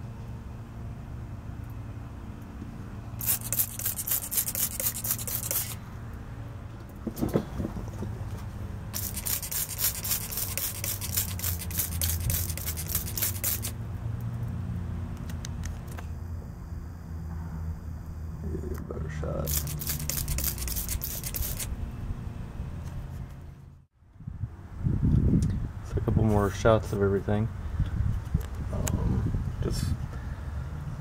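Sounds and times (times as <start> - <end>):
spray bottle squirting: 3.2 - 5.8, 9.0 - 13.8, 19.4 - 21.7.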